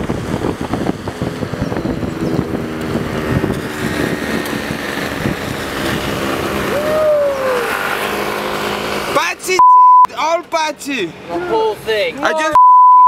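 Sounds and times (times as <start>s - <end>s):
rising and falling tone: 0.0s - 9.0s
vehicle engine running: 0.0s - 9.3s
road and wind noise: 0.0s - 12.6s.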